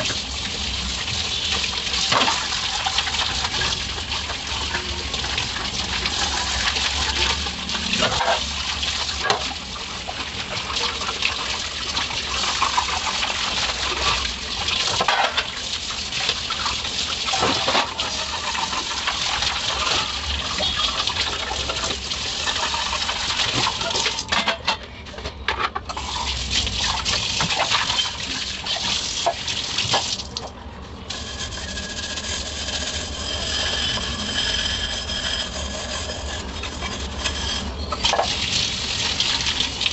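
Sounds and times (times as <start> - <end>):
tap water running into sink: 0.0 - 24.3, 25.9 - 30.6, 37.9 - 39.9.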